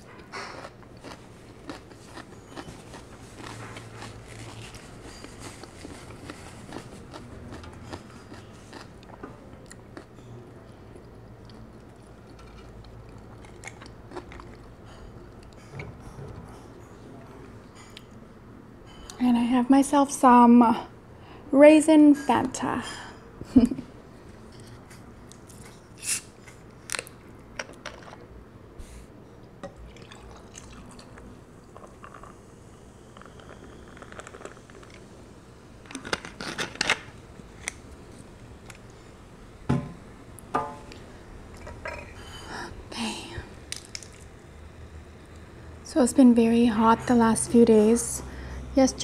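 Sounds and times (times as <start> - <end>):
chewing and mouth clicks: 0.2 - 10.3, 10.9 - 14.8.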